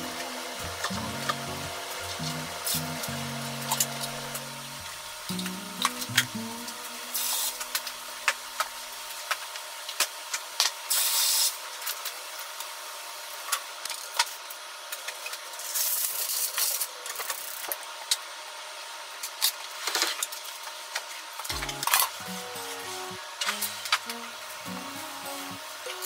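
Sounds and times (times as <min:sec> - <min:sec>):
sausages hissing in a pan: 0:00.0 - 0:05.8, 0:06.4 - 0:09.2, 0:10.8 - 0:11.7.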